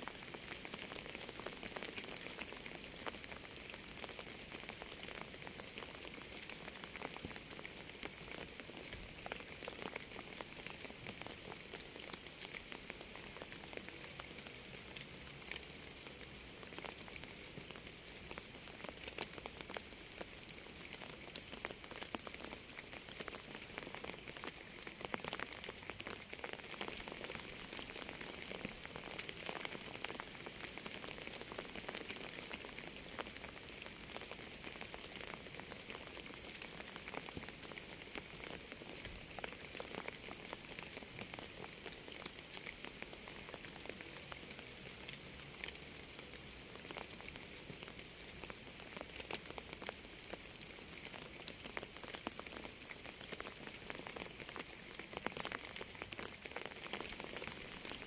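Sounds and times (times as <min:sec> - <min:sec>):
rain falling: 0:00.0 - 0:58.0.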